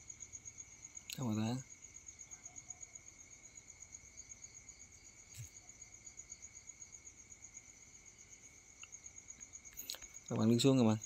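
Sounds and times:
faint high-pitched pulsing chirp: 0:00.0 - 0:04.1.

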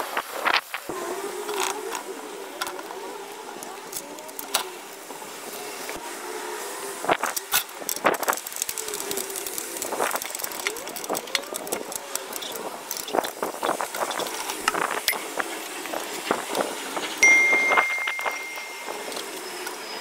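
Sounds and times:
faint wavering hum: 0:17.2 - 0:19.6.

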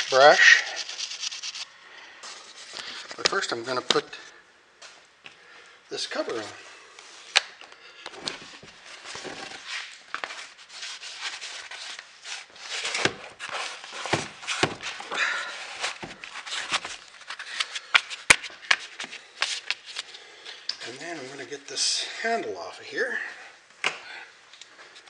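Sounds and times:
plastic cover rubbing: 0:00.0 - 0:01.7, 0:08.2 - 0:20.0.

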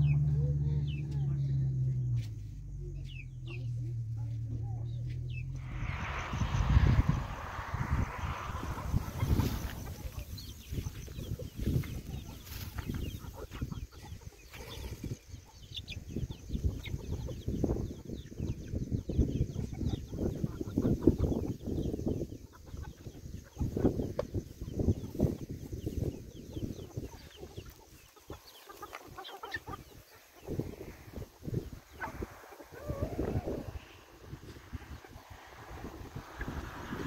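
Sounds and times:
low rustle: 0:04.0 - 0:10.9
chickens clucking: 0:08.7 - 0:37.0.

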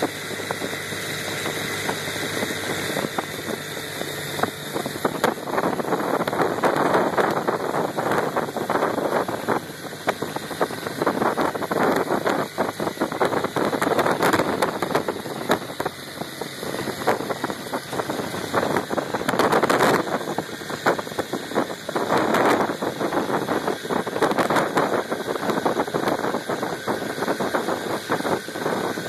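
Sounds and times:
outboard motor running: 0:00.0 - 0:29.0.

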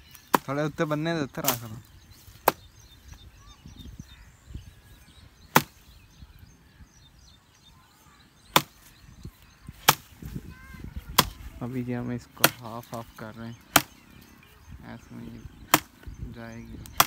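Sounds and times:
axe chopping wood: 0:00.2 - 0:00.6, 0:05.5 - 0:05.8, 0:08.5 - 0:08.9, 0:09.8 - 0:10.2, 0:11.2 - 0:11.4, 0:12.4 - 0:12.7, 0:13.7 - 0:14.0, 0:15.7 - 0:16.1.

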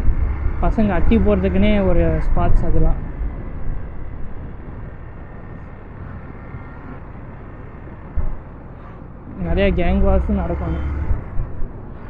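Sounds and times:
motorcycle engine rumble: 0:00.0 - 0:12.0
wind and road noise: 0:00.0 - 0:12.0.

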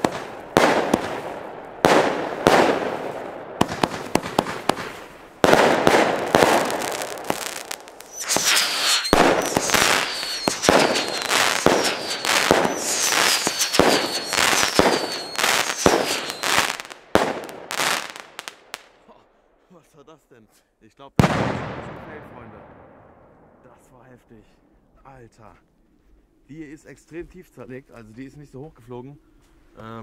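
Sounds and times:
fireworks shots and bursts: 0:00.0 - 0:19.0, 0:21.2 - 0:23.4
falling firework whistle: 0:06.2 - 0:17.0.

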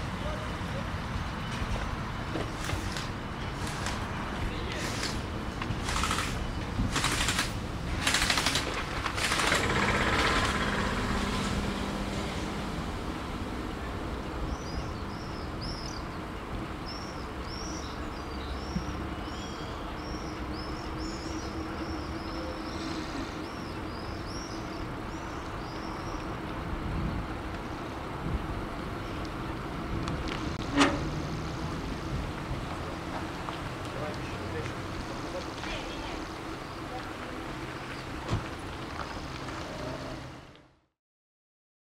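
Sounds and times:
wind and bicycle rolling noise: 0:00.0 - 0:40.8
small birds chirping: 0:13.8 - 0:26.4, 0:32.5 - 0:38.2.

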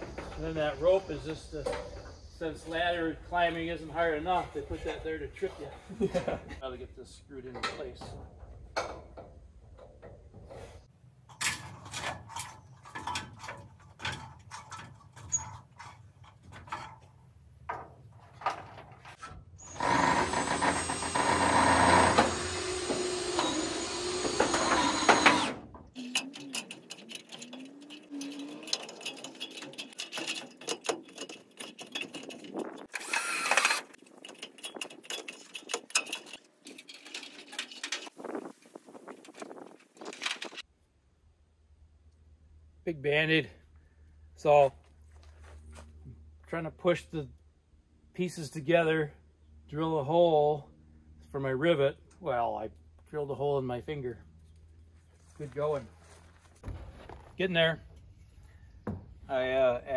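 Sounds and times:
cordless drill motor whining: 0:19.6 - 0:25.6, 0:32.9 - 0:34.0.

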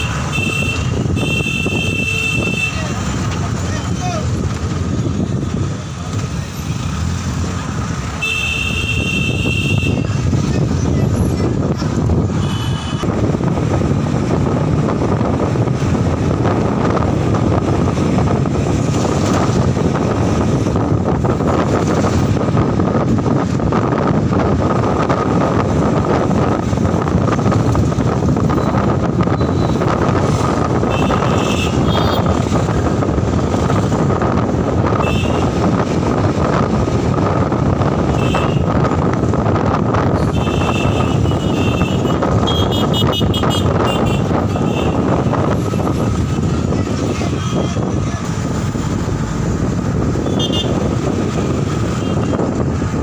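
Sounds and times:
vehicle engine and road noise: 0:00.0 - 0:53.0.

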